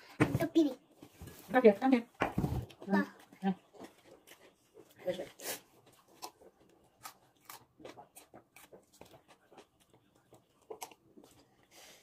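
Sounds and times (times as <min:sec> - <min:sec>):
person chewing food: 0:03.6 - 0:12.0.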